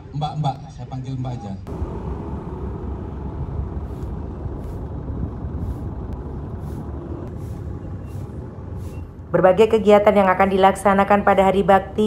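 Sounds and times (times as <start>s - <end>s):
truck engine idling: 1.7s - 10.6s.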